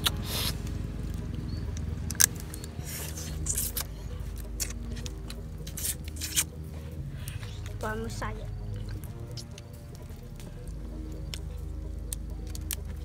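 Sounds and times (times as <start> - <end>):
chewing: 0.0 - 13.0
crab shells cracking: 2.0 - 6.5.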